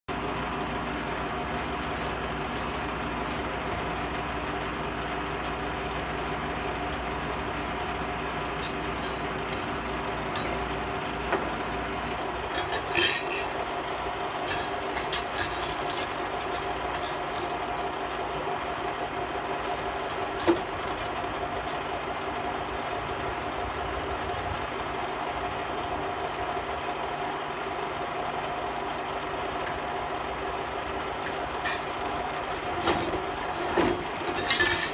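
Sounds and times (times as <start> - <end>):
machine hum: 0.1 - 34.9
metal sheet clinks: 12.5 - 13.6, 14.4 - 17.6, 31.2 - 34.9.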